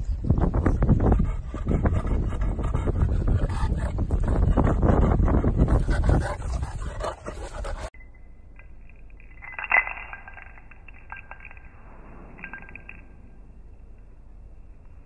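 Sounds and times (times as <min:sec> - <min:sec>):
wind buffeting microphone: 0:00.0 - 0:07.9.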